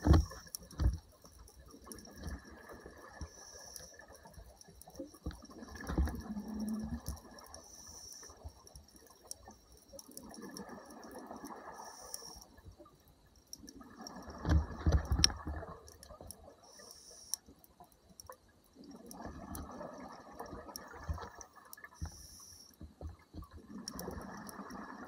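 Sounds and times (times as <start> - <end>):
faint clicks: 0.0 - 19.7, 20.4 - 25.0
gurgling exhaled bubbles: 5.4 - 7.5, 18.8 - 21.4.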